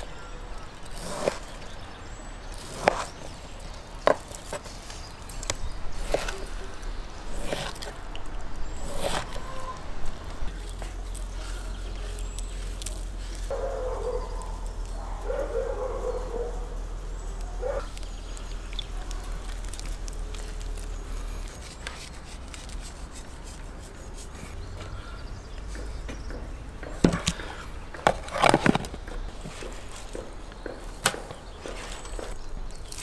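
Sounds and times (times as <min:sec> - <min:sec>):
objects clicking and knocking: 0:25.6 - 0:33.0.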